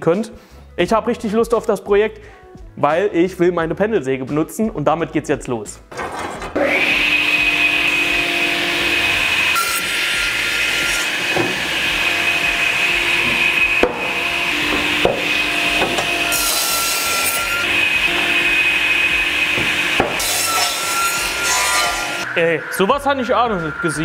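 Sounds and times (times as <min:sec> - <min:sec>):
saw cutting wood planks: 0:06.1 - 0:22.3
saw whining: 0:06.6 - 0:24.0
sharp knocks: 0:11.3 - 0:11.8, 0:13.1 - 0:16.1, 0:19.5 - 0:20.4.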